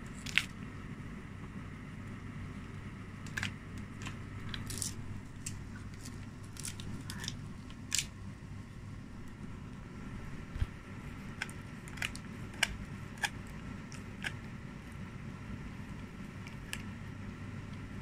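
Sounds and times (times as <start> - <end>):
low hum: 0.0 - 18.0
dog chewing crunchy cartilage: 10.5 - 15.0.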